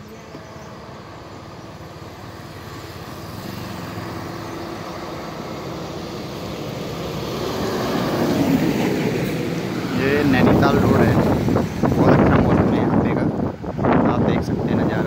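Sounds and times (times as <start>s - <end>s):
small car driving past: 0.0s - 10.6s
truck engine approaching: 0.0s - 15.0s.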